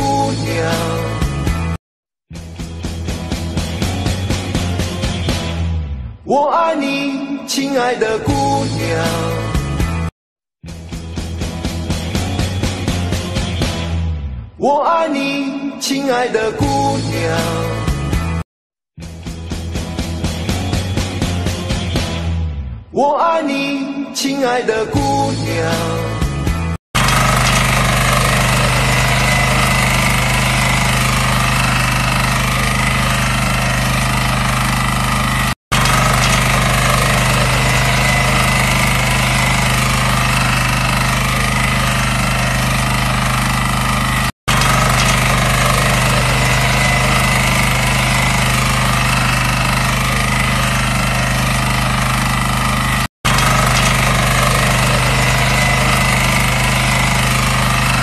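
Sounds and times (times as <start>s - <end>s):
tiller engine running under load: 3.1s - 5.4s, 27.0s - 58.0s.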